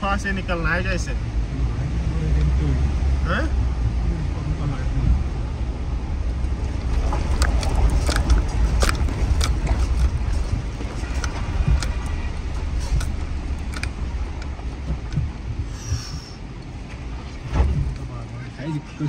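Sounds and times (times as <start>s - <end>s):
car rumbling over gravel: 5.0s - 18.2s
sharp clicks and knocks: 6.4s - 18.1s.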